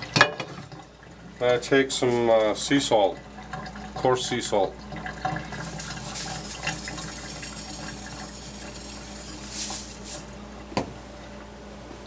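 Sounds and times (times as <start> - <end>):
salt pattering into a skillet: 5.7 - 10.3.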